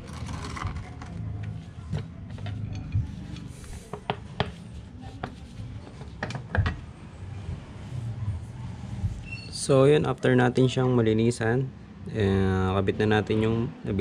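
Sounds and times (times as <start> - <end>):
metal clicks and knocks: 6.0 - 6.9.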